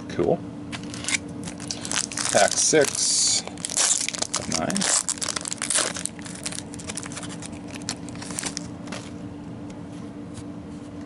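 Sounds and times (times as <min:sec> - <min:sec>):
foil wrapper crinkling: 0:00.8 - 0:09.2.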